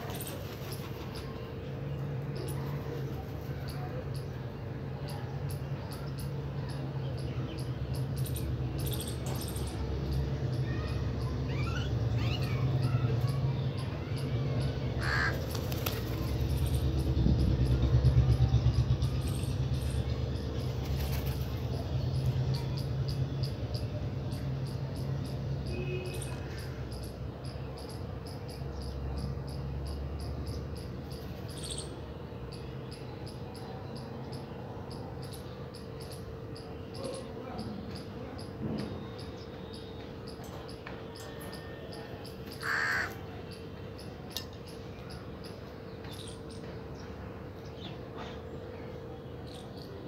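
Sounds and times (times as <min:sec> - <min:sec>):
constant low hum: 0:00.0 - 0:50.0
crow cawing: 0:15.0 - 0:15.5, 0:42.6 - 0:43.2.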